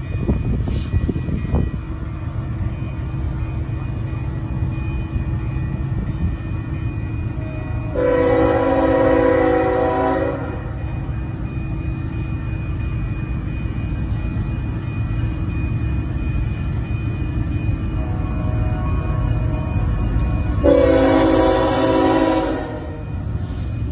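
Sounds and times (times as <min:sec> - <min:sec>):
locomotive air horn blast: 0:07.4 - 0:10.7, 0:20.6 - 0:23.2.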